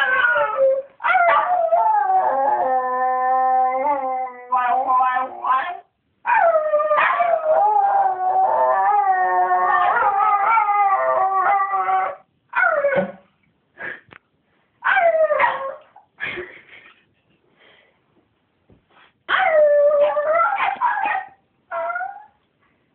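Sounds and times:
dog howling and yipping: 0.0s - 13.1s, 14.8s - 15.9s, 19.3s - 22.4s.

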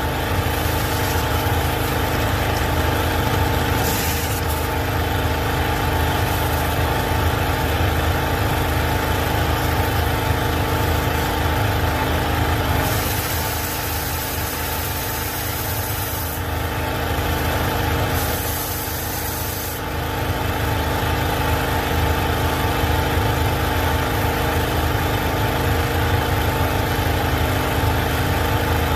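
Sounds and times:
pressure washer engine running: 0.0s - 28.9s
water jets hissing on concrete: 0.2s - 7.1s, 12.8s - 16.6s.

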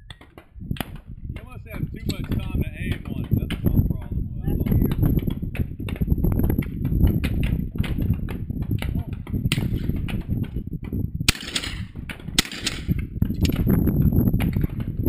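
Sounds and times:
wind buffeting microphone: 0.0s - 15.0s
shotgun reports: 11.3s - 13.0s
sharp crack: 11.3s - 13.7s.

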